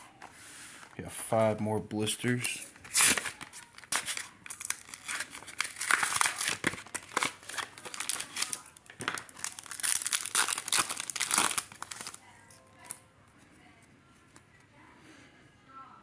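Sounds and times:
wrapper tearing open: 2.8 - 12.2
plastic wrapper crinkling: 2.8 - 13.0.

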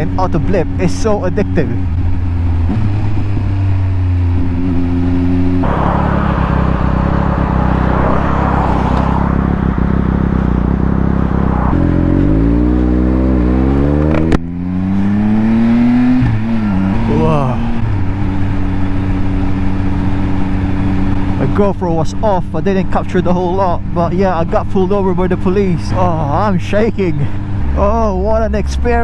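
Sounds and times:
motorcycle engine revving: 0.0 - 29.0
car passing: 5.4 - 17.0.

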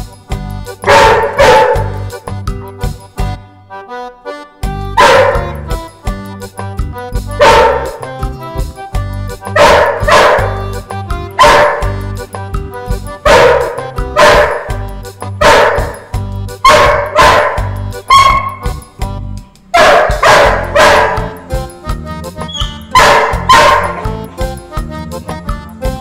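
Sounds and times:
background music: 0.0 - 26.0
dog barking: 0.8 - 2.1, 5.0 - 5.6, 7.4 - 8.1, 9.5 - 10.6, 11.4 - 12.0, 13.2 - 14.8, 15.4 - 18.7, 19.7 - 21.4, 22.5 - 24.1.

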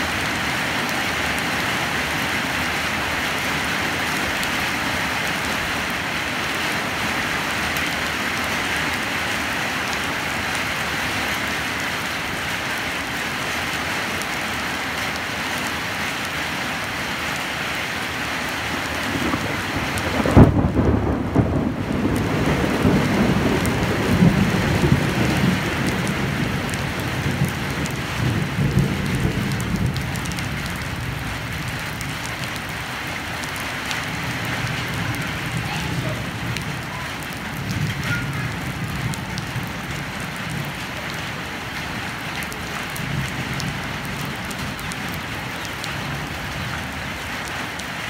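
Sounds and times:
steady rain: 0.0 - 48.0
thunder rumble: 18.8 - 41.0.

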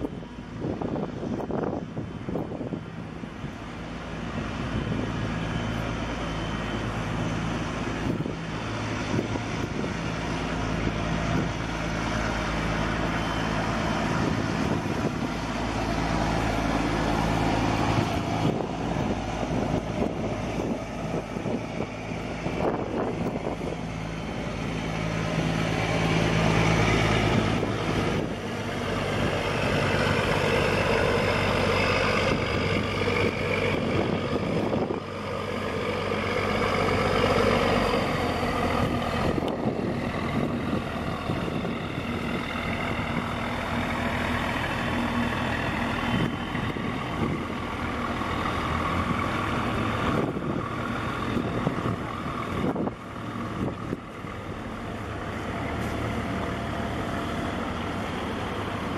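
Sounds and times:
boat engine droning: 0.0 - 58.9.

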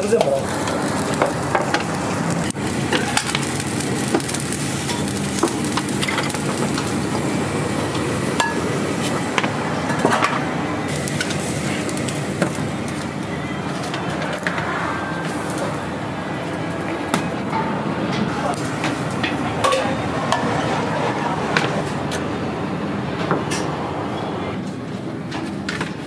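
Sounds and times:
food sizzling: 0.0 - 17.5
steady mechanical roar: 0.0 - 26.0
pans and dishes clinking: 19.2 - 20.6.

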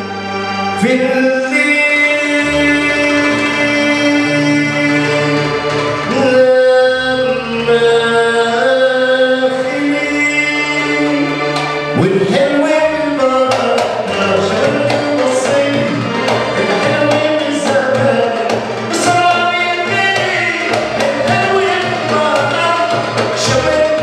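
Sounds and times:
keyboard notes: 0.0 - 24.0
man singing into microphone: 0.8 - 24.0
hand drum: 10.7 - 24.0.

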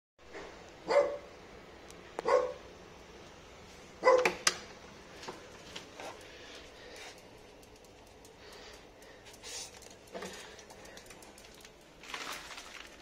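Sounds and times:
dog barking behind door: 0.8 - 1.3, 2.2 - 2.7, 4.0 - 4.4.

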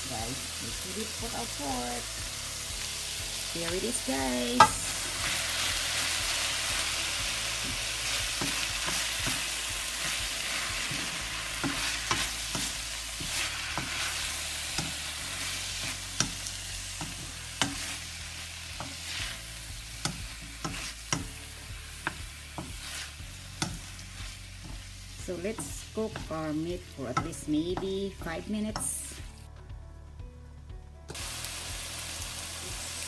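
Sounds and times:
meat sizzling in hot oil: 0.0 - 29.5, 31.1 - 33.0
wooden spatula scraping pan: 22.0 - 24.9.

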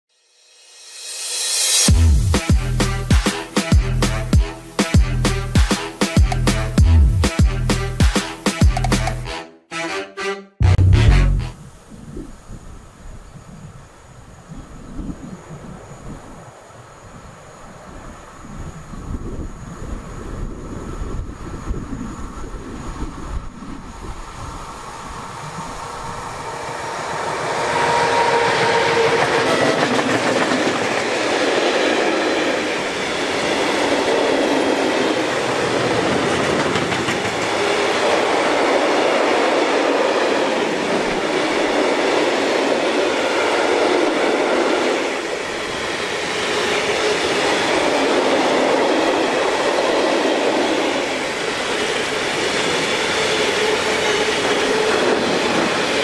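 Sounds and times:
electric locomotive passing: 0.4 - 6.7, 11.4 - 56.0
train wheels rumbling on rails: 17.8 - 56.0.

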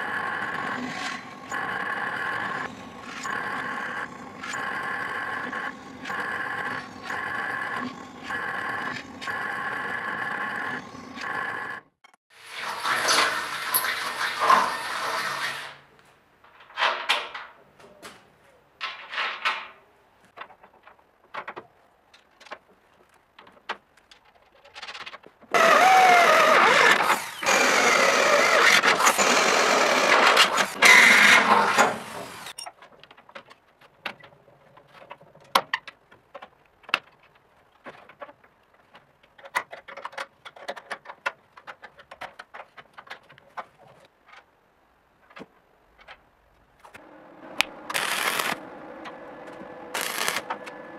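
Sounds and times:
drill boring into steel: 25.6 - 32.5, 47.9 - 48.6, 49.9 - 50.5.

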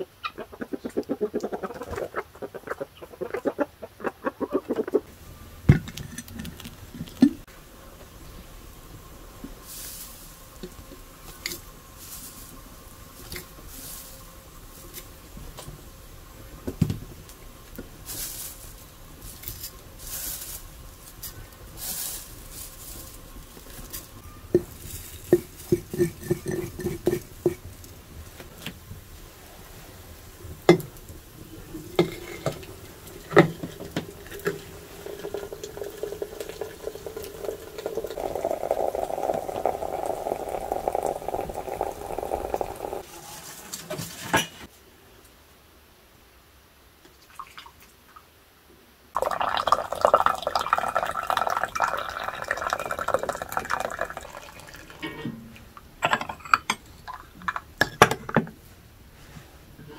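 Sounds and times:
water pouring into teapot: 23.3 - 27.7, 31.6 - 43.0, 49.2 - 55.0
glass and dishes clinking: 25.3 - 27.3, 55.0 - 58.5.

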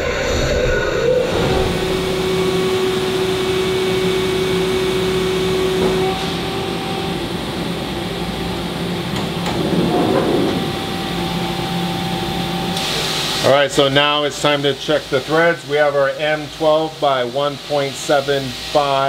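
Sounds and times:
steady tone: 0.0 - 12.8
machine pumps and fans humming: 0.0 - 19.0
sliding door opening: 9.1 - 11.4.

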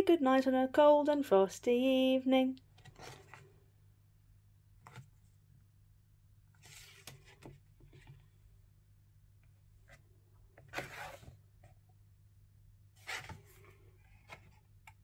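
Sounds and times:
low steady hum: 0.0 - 15.0
page turning rustle: 2.7 - 3.5, 6.5 - 8.2, 13.0 - 14.6.

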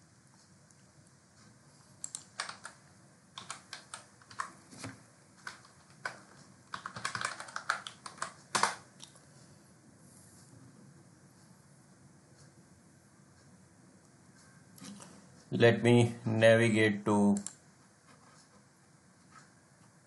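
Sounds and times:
computer keyboard typing: 2.0 - 9.2.

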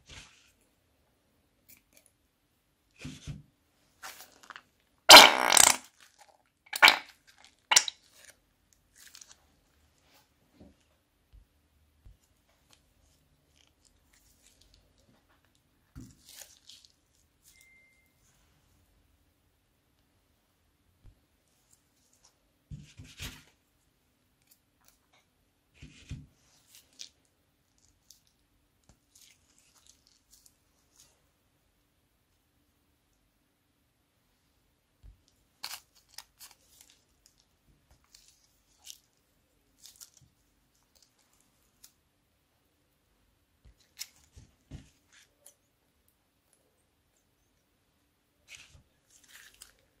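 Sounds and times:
slime squelching from plastic bag: 29.0 - 31.1, 35.6 - 41.9.

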